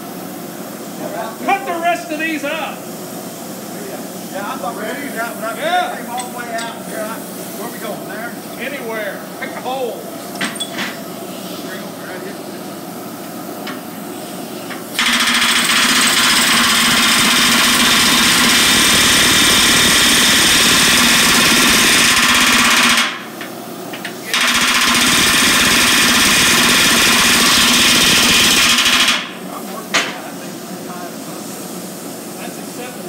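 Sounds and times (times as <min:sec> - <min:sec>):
pneumatic rivet gun hammering: 0:14.6 - 0:30.2.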